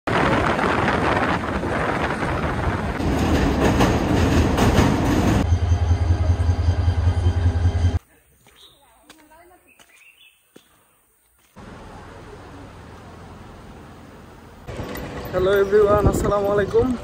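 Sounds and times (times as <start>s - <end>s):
moving train rumble: 0.1s - 8.0s, 11.6s - 17.0s.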